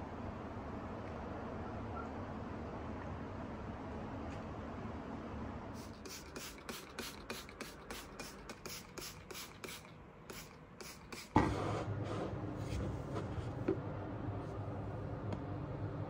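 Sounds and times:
spray bottle hissing sprays: 0:05.8 - 0:11.4.

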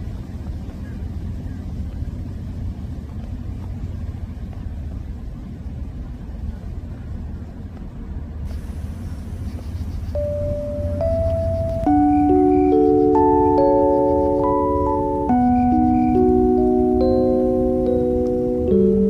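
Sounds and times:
low outdoor rumble: 0:00.0 - 0:19.0
sustained chime-like note: 0:10.2 - 0:19.0.

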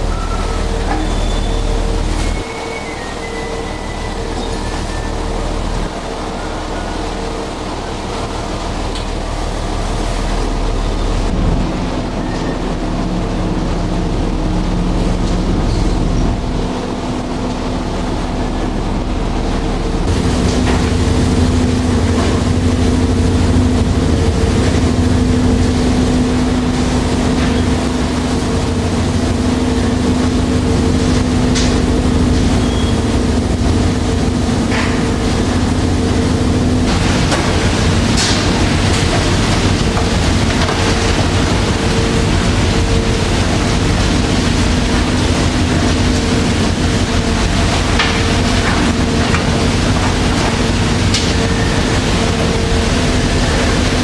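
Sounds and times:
ship engine and machinery drone: 0:00.0 - 0:54.0.

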